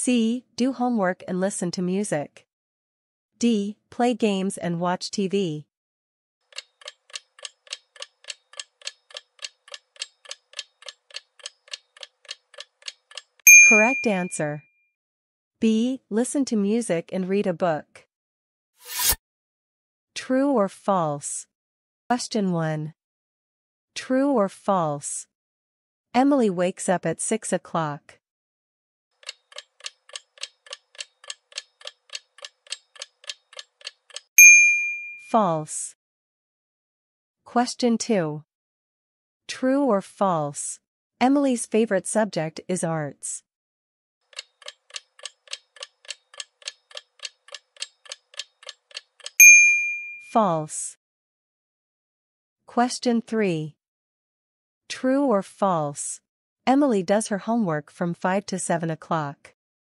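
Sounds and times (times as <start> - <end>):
clock ticking timer: 6.5 - 14.4, 29.2 - 34.3, 44.3 - 49.4.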